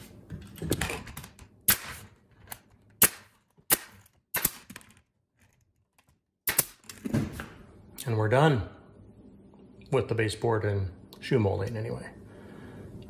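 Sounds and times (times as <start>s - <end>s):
nail gun shots: 1.6s - 2.1s, 3.0s - 4.8s, 6.4s - 6.9s.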